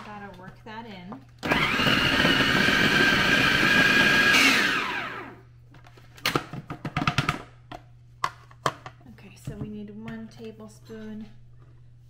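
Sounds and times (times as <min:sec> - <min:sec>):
food processor running: 0:01.4 - 0:05.4.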